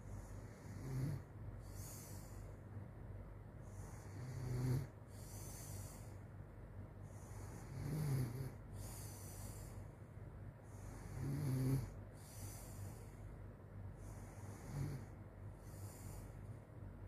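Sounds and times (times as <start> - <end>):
steady low hum: 0.0 - 17.0
girl snoring: 0.5 - 2.1, 3.9 - 6.0, 7.3 - 9.6, 10.8 - 12.5, 14.2 - 15.1.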